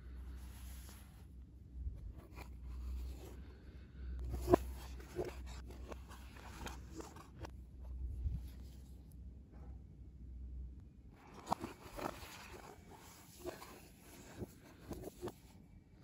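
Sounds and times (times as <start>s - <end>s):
low steady hum: 0.0s - 16.0s
cardboard rubbing and sliding: 0.3s - 1.3s, 4.2s - 7.5s, 11.3s - 15.5s.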